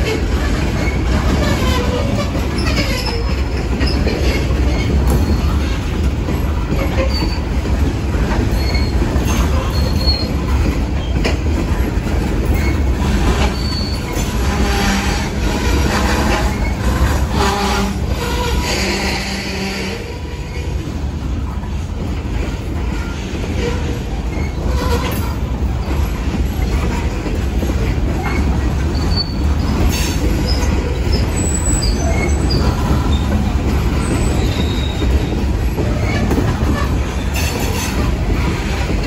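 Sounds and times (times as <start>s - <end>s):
steel wheels rumbling on rail: 0.0s - 39.0s
wheel squeals: 0.1s - 6.0s, 6.6s - 7.6s, 8.3s - 11.4s, 12.5s - 18.9s, 28.1s - 39.0s.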